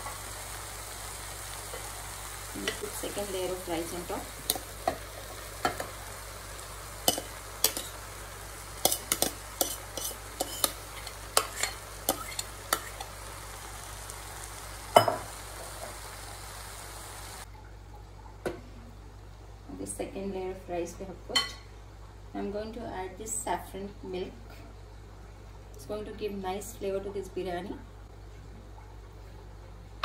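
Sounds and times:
steady hiss: 0.0s - 17.5s.

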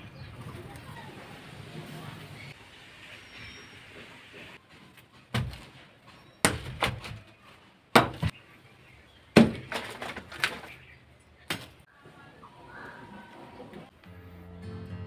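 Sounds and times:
sticks dropped on ground: 9.4s - 10.8s.

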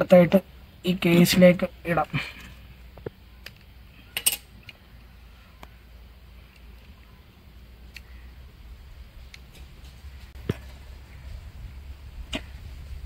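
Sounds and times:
low steady rumble: 4.6s - 13.0s.

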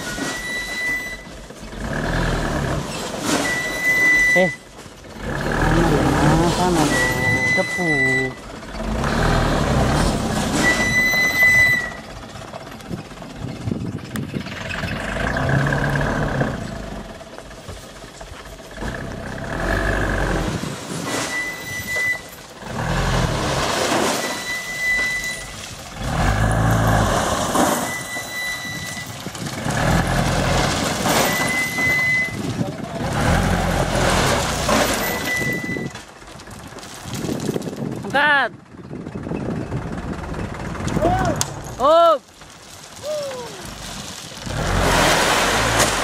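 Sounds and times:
diesel engine revving: 1.4s - 4.3s, 5.0s - 37.5s, 38.6s - 46.0s
short high-pitched beeps: 3.4s - 4.6s, 6.8s - 8.4s, 24.2s - 25.6s, 27.8s - 29.2s, 31.2s - 32.4s, 35.0s - 35.9s.

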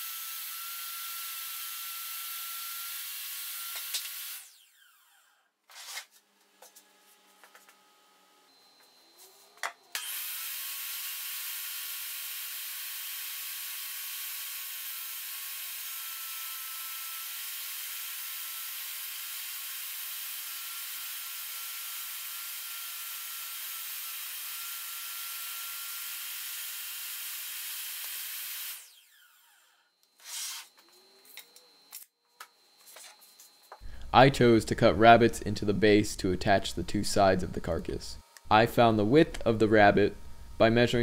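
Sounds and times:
table saw cutting plywood: 0.0s - 6.8s, 9.0s - 31.7s.

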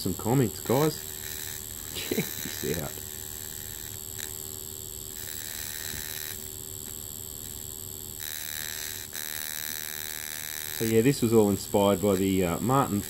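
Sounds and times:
electric arc buzzing and crackling: 0.0s - 13.0s
electric arc snap: 0.0s - 13.0s
electrical hum: 0.0s - 13.0s.

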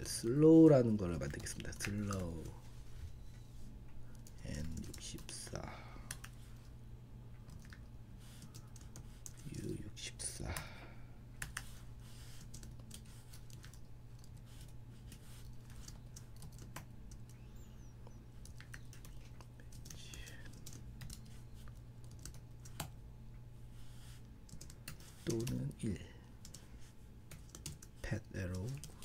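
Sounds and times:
faint low hum: 0.0s - 29.0s
keyboard typing: 4.1s - 5.3s, 6.0s - 6.7s, 7.4s - 9.6s, 11.4s - 23.0s, 24.5s - 25.8s, 27.3s - 29.0s.

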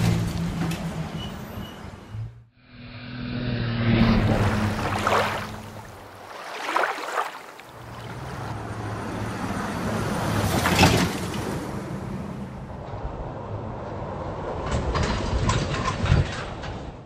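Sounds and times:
vehicles passing: 0.0s - 17.0s
low engine hum: 2.8s - 14.8s.

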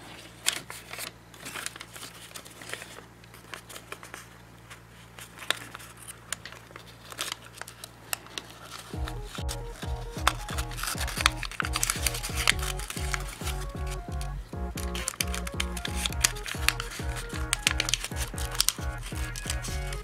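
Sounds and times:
paper crinkling and rustling: 0.0s - 20.0s
background music: 9.0s - 20.0s.

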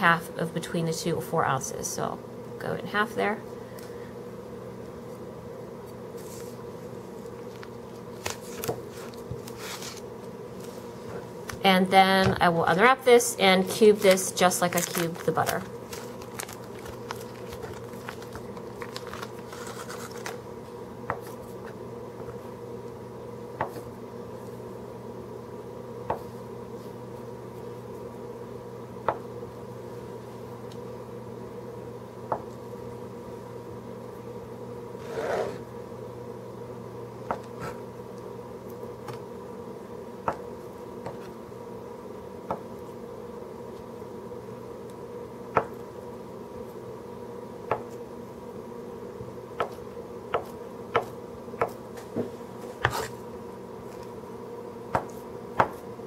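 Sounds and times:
steady hum: 0.0s - 56.0s
foil wrapper crinkling: 7.4s - 10.0s, 13.9s - 20.4s.

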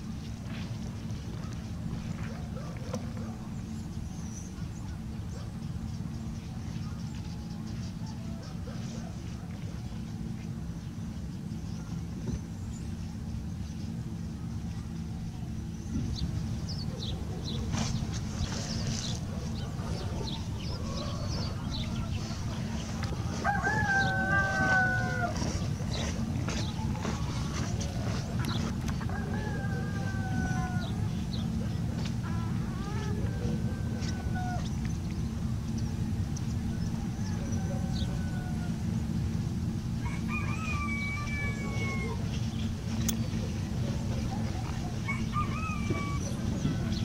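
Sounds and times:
steady low rumble: 0.0s - 47.0s
small birds chirping: 0.2s - 47.0s
rooster crowing: 19.8s - 31.2s, 32.3s - 34.7s, 36.8s - 39.0s, 40.0s - 42.4s, 44.4s - 47.0s.

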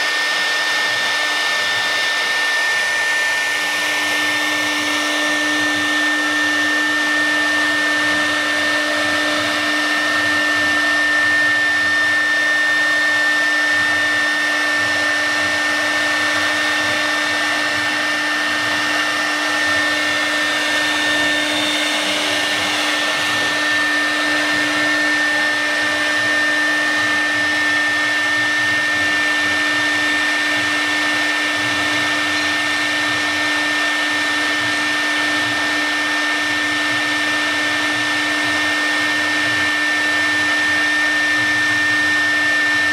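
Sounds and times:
wood router whine: 0.0s - 42.9s.

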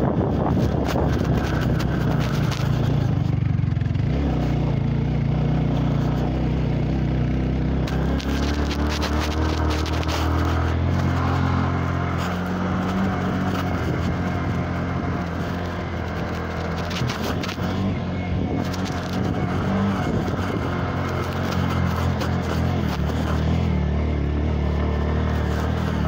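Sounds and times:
wind buffeting microphone: 0.0s - 4.6s, 7.9s - 23.7s
stones crackling under tyres: 0.0s - 4.8s, 5.5s - 26.0s
motorcycle engine running: 0.0s - 26.0s.

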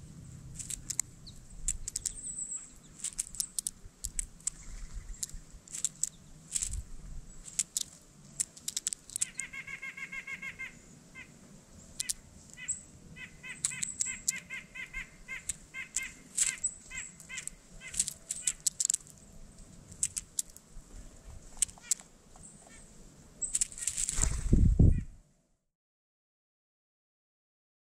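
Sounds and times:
bird pecking seed on feeder: 0.6s - 9.8s, 11.9s - 20.6s, 21.4s - 22.8s, 23.4s - 24.4s.

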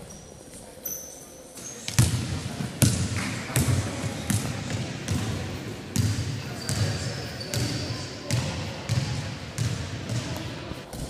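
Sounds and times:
basketball bouncing on wooden floor: 6.0s - 6.9s, 7.5s - 10.5s.

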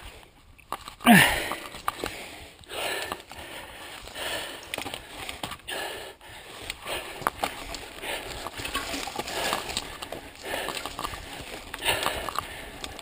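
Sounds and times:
tyres hissing on dirt trail: 1.1s - 13.0s
mountain bike rattling and knocking: 6.8s - 13.0s.

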